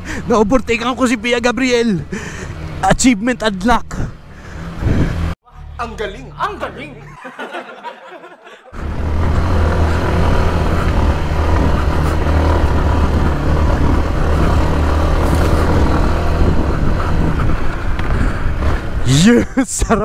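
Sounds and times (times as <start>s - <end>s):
dirt bike engine running: 8.8s - 19.1s.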